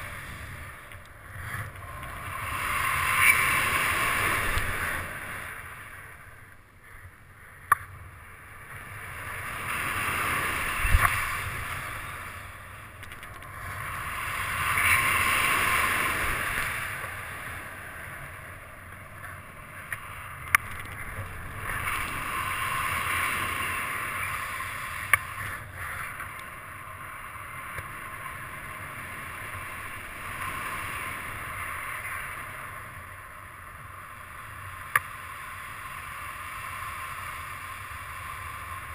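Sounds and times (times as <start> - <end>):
wind rushing over microphone: 0.0 - 6.4, 8.4 - 18.8, 19.5 - 33.4.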